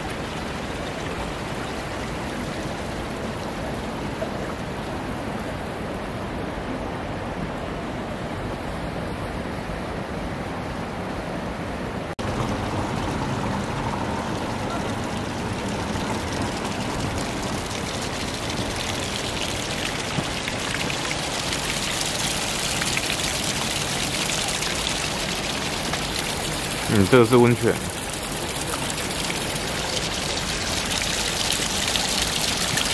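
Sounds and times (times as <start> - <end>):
flowing water: 0.0 - 32.9
water streaming down rock: 12.2 - 32.9.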